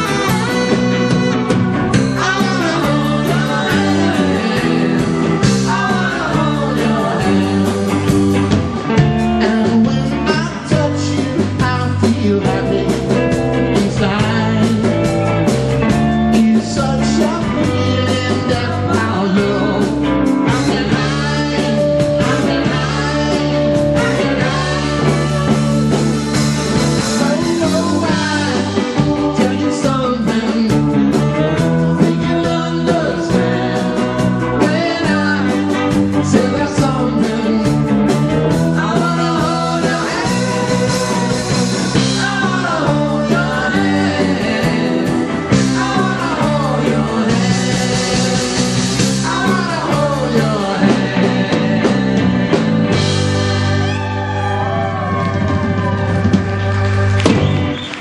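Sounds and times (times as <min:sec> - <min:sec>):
tenor saxophone: 0:00.0 - 0:05.9
live rock band playing: 0:00.0 - 0:58.0.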